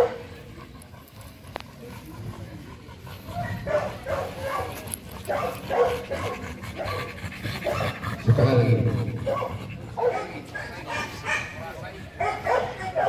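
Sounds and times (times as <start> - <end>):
dog barking: 0.0 - 0.2, 3.4 - 4.7, 5.3 - 7.0, 9.2 - 11.5, 12.2 - 13.0.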